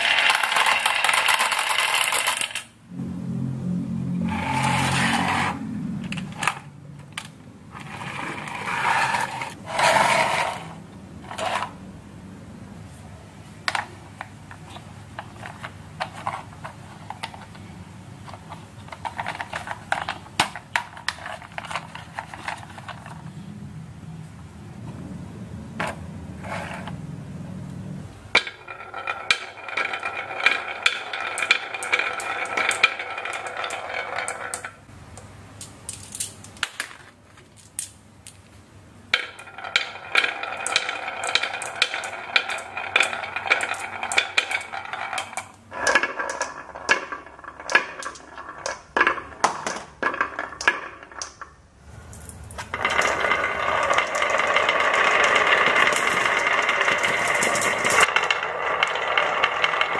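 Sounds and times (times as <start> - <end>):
marbles clacking on wooden run: 0.0 - 2.7, 28.4 - 34.9, 39.1 - 51.6, 52.6 - 59.9
low hum: 2.8 - 9.8.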